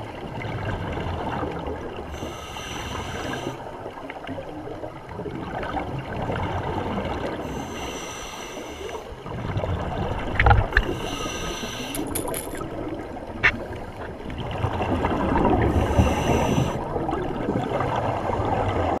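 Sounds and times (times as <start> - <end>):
regulator hissing inhale: 2.1 - 3.6, 7.4 - 9.2, 10.8 - 12.6, 15.6 - 16.8.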